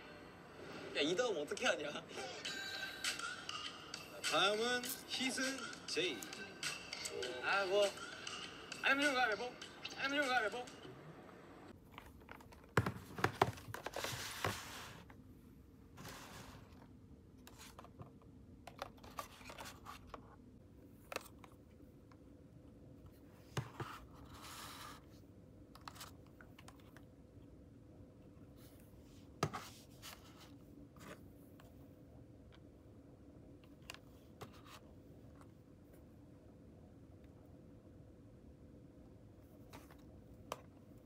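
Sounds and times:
plastic boxes crinkling: 11.9 - 14.4
boxes tapping on desk: 12.7 - 13.8.

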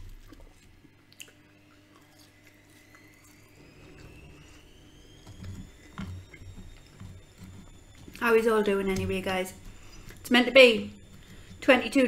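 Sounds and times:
person chewing fries: 0.0 - 8.3
faint rising high tone: 1.5 - 12.0.

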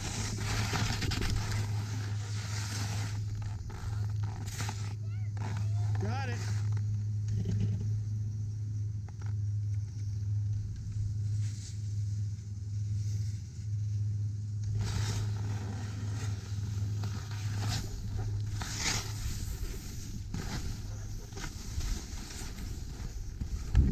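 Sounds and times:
wind rumble on microphone: 0.0 - 4.5, 14.7 - 23.9
skis scraping over snow: 0.0 - 6.8, 10.8 - 14.0, 14.7 - 23.9.

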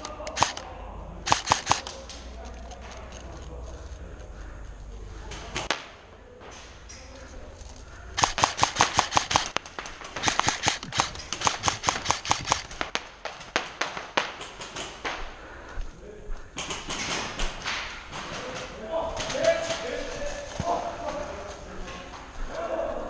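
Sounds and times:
airsoft guns firing: 0.0 - 2.3, 5.3 - 6.8, 8.1 - 15.4, 16.6 - 20.1.

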